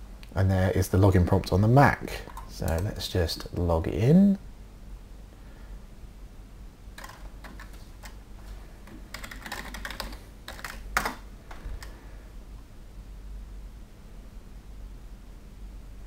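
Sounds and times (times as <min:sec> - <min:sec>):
typing on computer keyboard: 0:07.0 - 0:08.2, 0:08.8 - 0:11.9.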